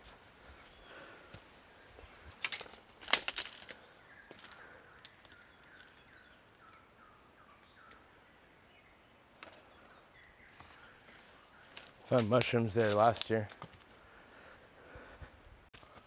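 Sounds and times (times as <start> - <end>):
footsteps crunching on dry leaves: 0.0 - 6.2, 10.5 - 14.6.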